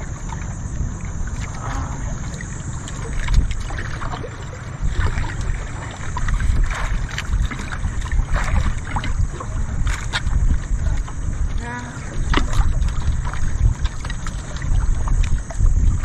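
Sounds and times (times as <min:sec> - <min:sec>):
small knocks and splashes: 0:00.0 - 0:16.0
water lapping against boat hull: 0:00.0 - 0:16.0
wind buffeting microphone: 0:00.0 - 0:16.0.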